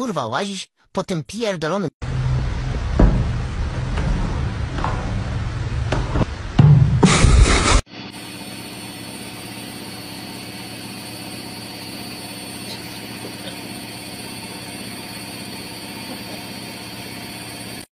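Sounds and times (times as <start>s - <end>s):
washing machine humming: 2.0s - 17.9s.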